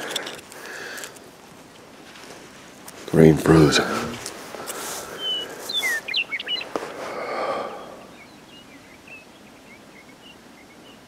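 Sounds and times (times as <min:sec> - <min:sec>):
soft rustling: 0:00.0 - 0:07.2
small birds chirping: 0:00.0 - 0:11.0.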